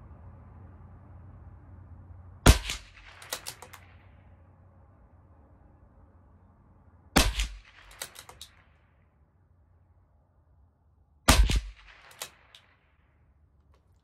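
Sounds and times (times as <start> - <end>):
rifle shot with echo: 2.4 - 4.3, 7.2 - 9.1, 11.3 - 13.2
rifle bolt metallic clicks: 2.5 - 3.9, 7.2 - 8.6, 11.3 - 12.7.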